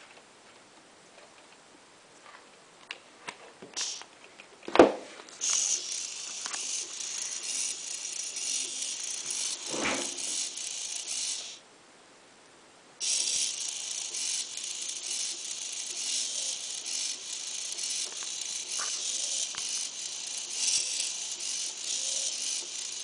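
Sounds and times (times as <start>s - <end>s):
servo motors whirring: 5.4s - 11.6s, 13.0s - 23.0s
thump: 9.7s - 10.2s.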